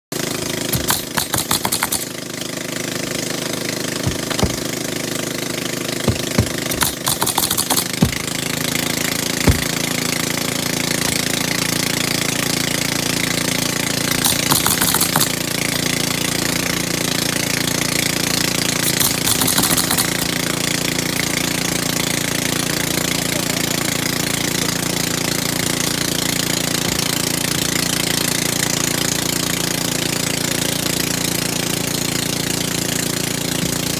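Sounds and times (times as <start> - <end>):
engine running steadily: 0.2 - 33.9
nail gun shots: 0.7 - 2.2, 6.1 - 8.3, 14.1 - 15.4, 18.8 - 20.3.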